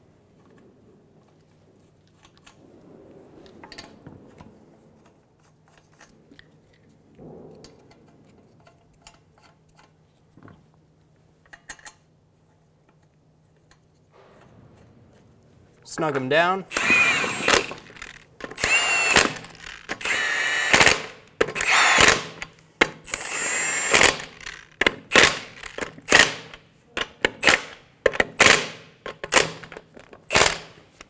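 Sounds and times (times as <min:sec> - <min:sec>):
metallic clicks and scrapes: 0:03.4 - 0:10.6, 0:17.2 - 0:20.1.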